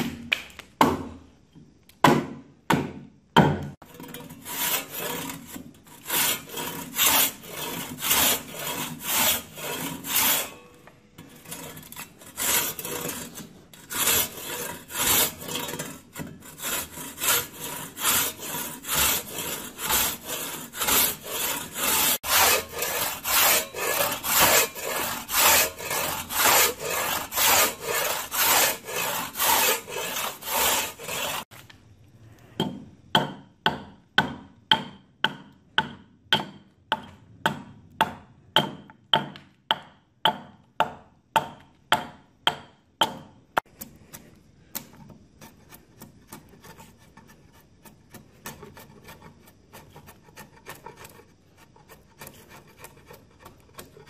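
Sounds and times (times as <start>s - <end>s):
axe chopping wood: 0.0s - 1.2s, 2.0s - 3.7s
saw rasping through wood: 3.9s - 10.6s, 11.2s - 31.5s.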